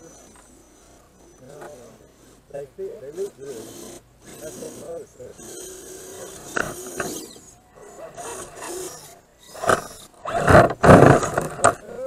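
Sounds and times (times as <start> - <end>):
electric motor whirring: 0.0 - 12.0.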